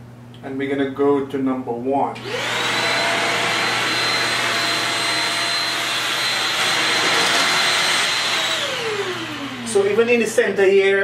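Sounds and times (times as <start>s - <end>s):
vacuum motor winding down: 2.2s - 10.4s
upright vacuum running: 2.2s - 10.9s.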